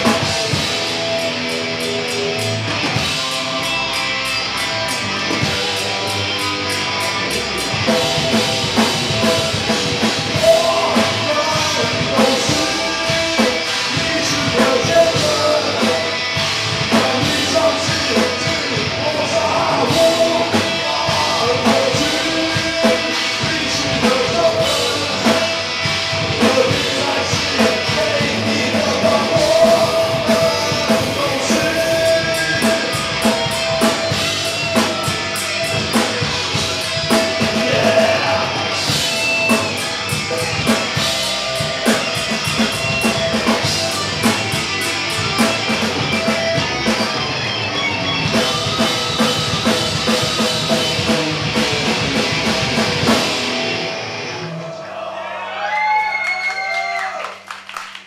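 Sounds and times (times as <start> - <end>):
drum kit: 0.0 - 54.4
distorted electric guitars: 0.0 - 54.9
vocals: 7.1 - 47.5, 54.3 - 55.8.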